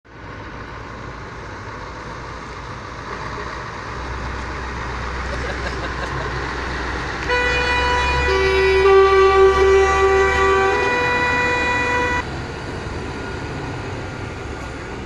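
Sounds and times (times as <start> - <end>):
truck engines rumbling past: 0.1 - 15.0
lower truck horn: 7.2 - 12.2
truck horn blowing: 7.2 - 12.2.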